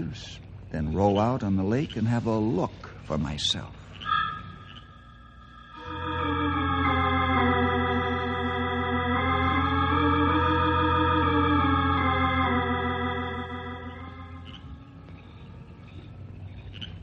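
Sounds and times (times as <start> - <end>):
organ chords: 4.1 - 15.4.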